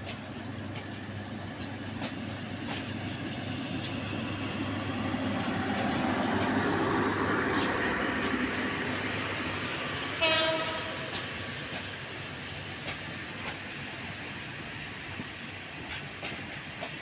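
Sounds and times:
train coaches rolling past: 0:00.0 - 0:17.0
wheels clicking over rail joints: 0:01.6 - 0:06.6.

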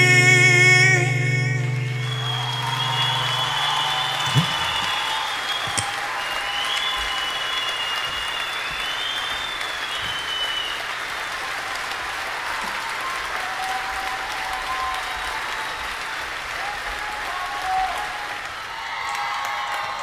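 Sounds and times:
audience applauding: 0:01.6 - 0:20.0
high whistles: 0:01.8 - 0:11.5
thump: 0:04.2 - 0:05.0.

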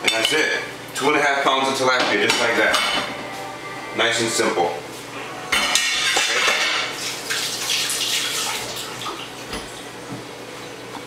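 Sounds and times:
running water splashing: 0:06.0 - 0:09.6.

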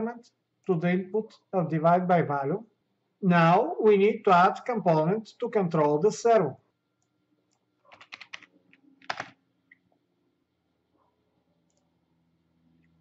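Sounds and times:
typing on computer keyboard: 0:07.8 - 0:09.4.

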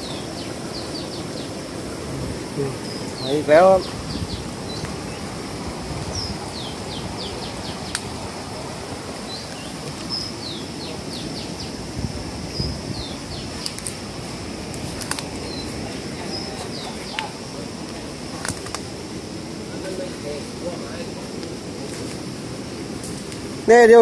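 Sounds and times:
small birds chirping: 0:00.0 - 0:19.1.

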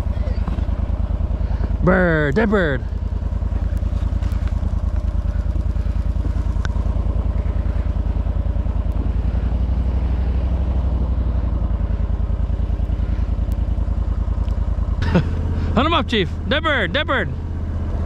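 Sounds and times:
outboard motor putter: 0:00.0 - 0:18.0.

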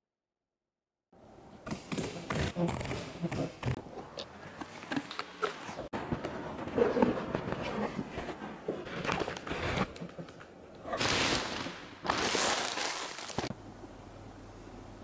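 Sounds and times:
plastic bag rustling: 0:10.9 - 0:13.5
low steady hum: 0:13.5 - 0:15.0.

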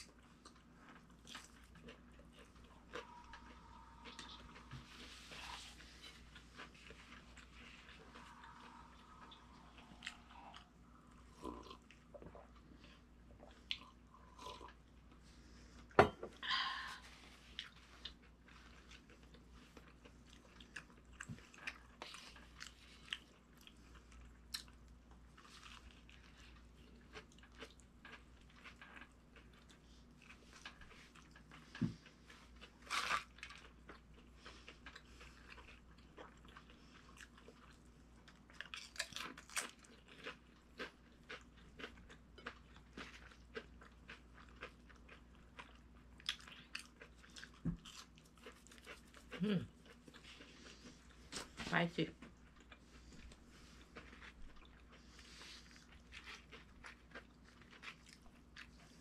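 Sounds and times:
chewing with crunches: 0:00.0 - 0:15.2, 0:17.2 - 0:59.0.

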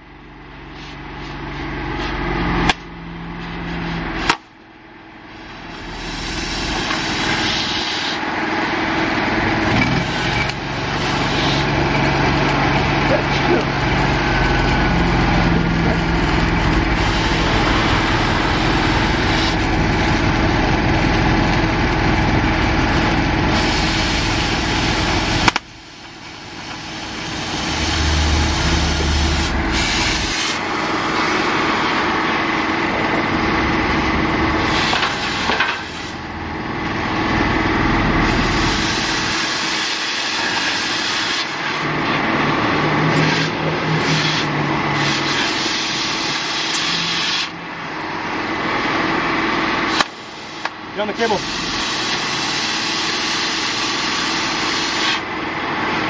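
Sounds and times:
engine running: 0:00.0 - 0:56.0
welding arc crackling hiss: 0:05.6 - 0:08.4, 0:10.1 - 0:11.8, 0:16.6 - 0:22.0, 0:23.2 - 0:32.1, 0:34.6 - 0:36.3, 0:38.3 - 0:41.8, 0:43.3 - 0:47.6, 0:49.9 - 0:55.2.

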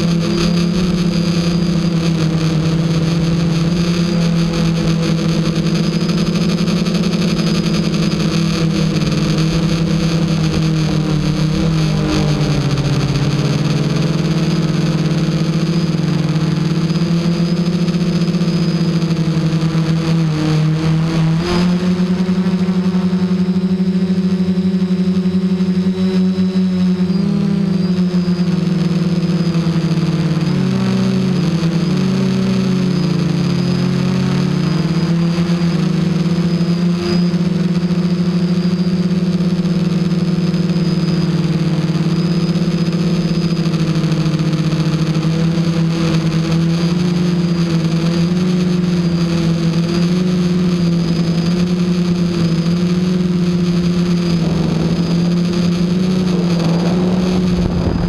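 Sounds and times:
rough rush of noise: 0:00.0 - 0:16.8, 0:18.0 - 0:25.3, 0:52.1 - 0:58.0
quadcopter motors whirring: 0:00.0 - 0:58.0.

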